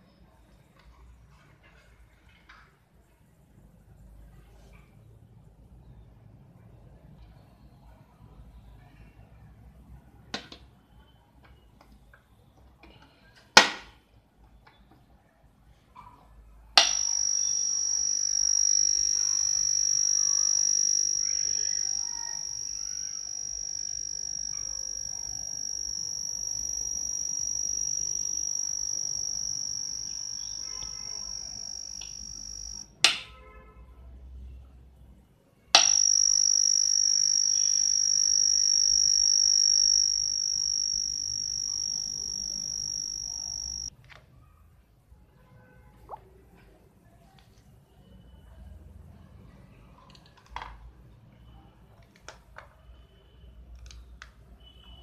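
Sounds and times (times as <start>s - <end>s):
sharp clicks: 16.8s - 32.8s
high-pitched electronic whine: 16.8s - 32.9s, 35.8s - 43.9s.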